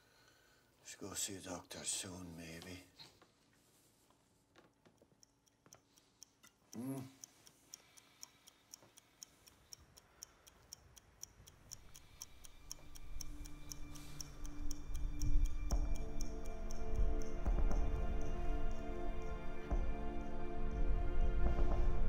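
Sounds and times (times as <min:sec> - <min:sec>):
clock-like ticking: 0:04.9 - 0:20.3
low voice-like sound: 0:06.8 - 0:07.2
low drone: 0:12.6 - 0:22.0.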